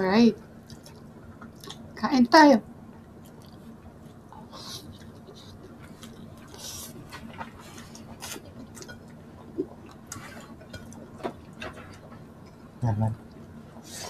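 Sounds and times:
faint steady hum: 0.0s - 14.0s
soft chewing: 0.4s - 1.9s, 2.9s - 14.0s.

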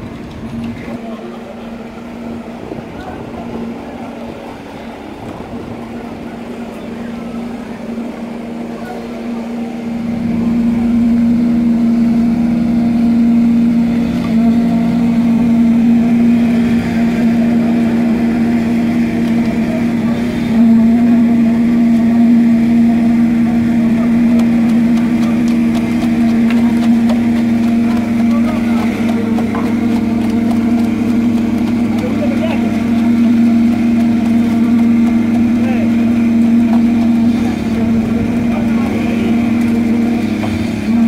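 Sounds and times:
engine running steadily: 0.0s - 41.0s.

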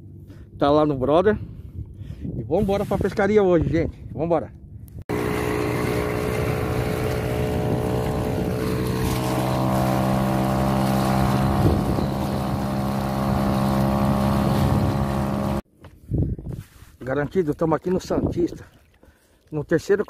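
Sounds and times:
wind on microphone: 1.4s - 17.0s
outboard motor running: 5.1s - 15.6s
water rushing along hull: 5.1s - 15.6s.

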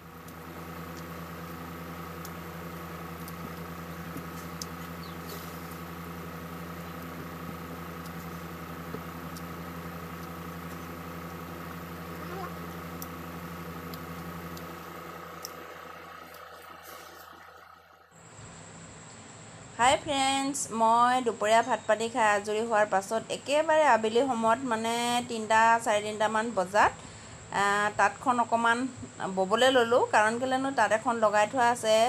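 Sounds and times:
electric fan humming: 0.0s - 32.0s
faint clicks: 3.2s - 5.8s, 13.8s - 15.6s.

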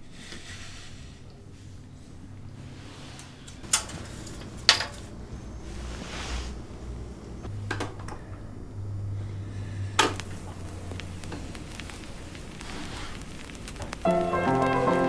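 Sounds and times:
soft rustle: 0.0s - 7.5s, 8.3s - 14.1s.

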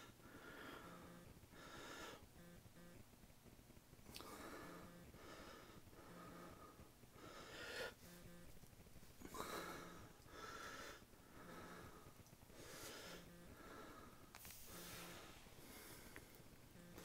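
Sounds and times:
faint wheezy breathing: 0.0s - 2.4s, 4.2s - 8.4s, 9.2s - 17.0s.

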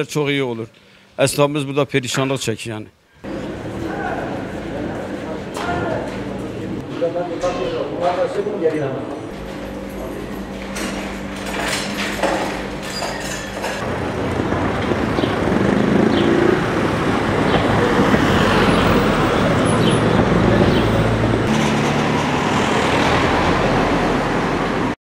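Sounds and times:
vehicle engine passing by: 3.2s - 7.9s, 13.8s - 25.0s
passing vehicles: 3.2s - 12.8s, 13.6s - 25.0s.

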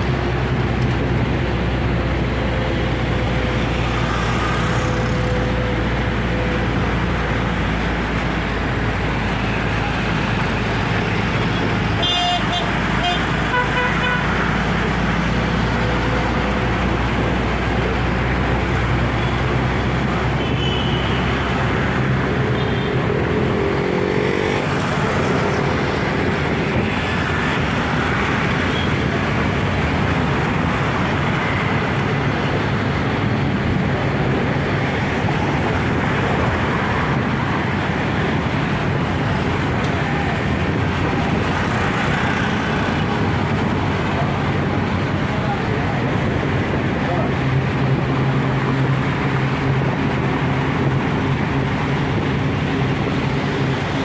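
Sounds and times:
road traffic: 0.0s - 54.0s.

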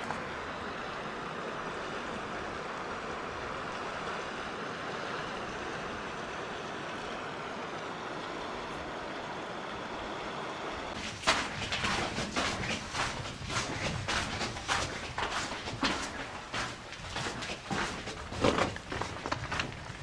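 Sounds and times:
river flowing: 0.0s - 11.5s.

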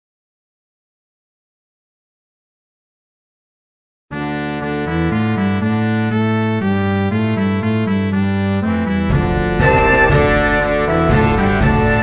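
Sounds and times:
synthesized winds and brass: 4.1s - 12.0s.

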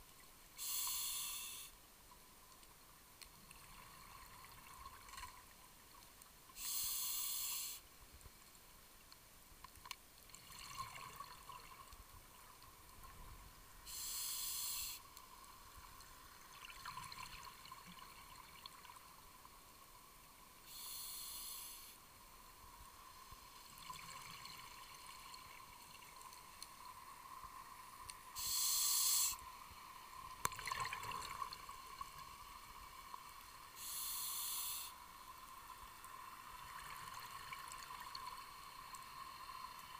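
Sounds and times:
regulator inhalation: 0.6s - 1.7s, 6.6s - 7.8s, 13.9s - 15.0s, 20.7s - 22.0s, 28.4s - 29.4s, 33.8s - 35.0s
exhaled bubbles underwater: 30.5s - 32.2s.

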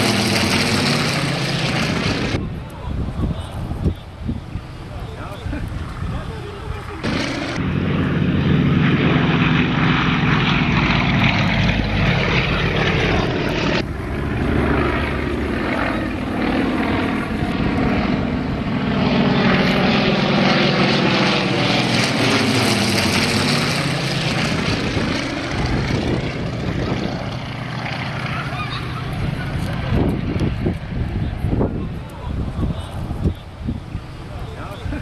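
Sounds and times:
propeller aircraft engine drone: 0.0s - 35.0s.

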